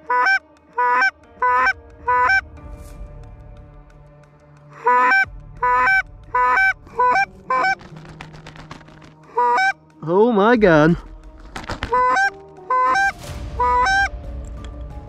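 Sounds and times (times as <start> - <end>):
goose honking: 0.0 - 2.4, 4.8 - 8.2, 9.3 - 9.8, 11.7 - 14.1.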